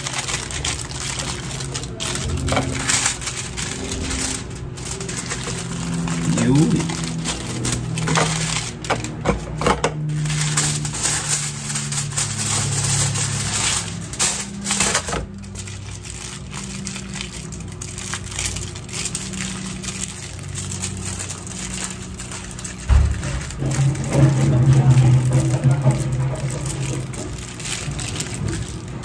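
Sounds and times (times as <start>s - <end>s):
aluminium foil crinkling: 0.0s - 29.0s
low drone: 0.5s - 9.2s.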